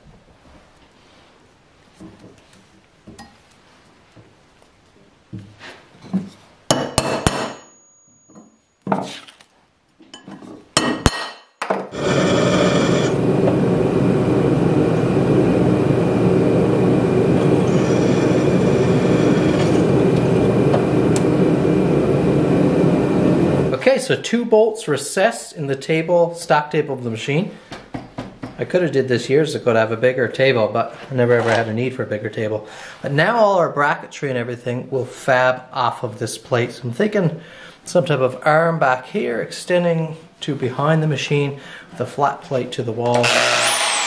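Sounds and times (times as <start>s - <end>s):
metallic knocks and clinks: 6.8s - 9.0s
drill press drilling steel: 12.0s - 13.6s, 17.2s - 21.2s, 43.2s - 44.0s.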